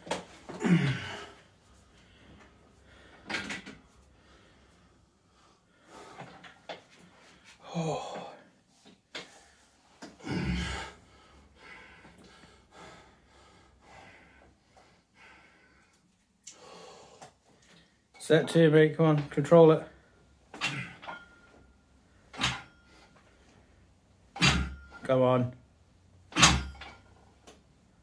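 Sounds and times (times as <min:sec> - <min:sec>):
man breathing and grunting: 0:00.3 - 0:21.5.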